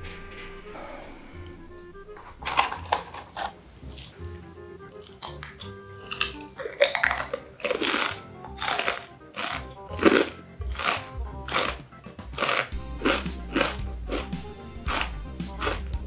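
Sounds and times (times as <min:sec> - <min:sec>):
background music: 0:00.0 - 0:16.0
chip crunching and chewing: 0:02.4 - 0:04.2, 0:05.0 - 0:15.9.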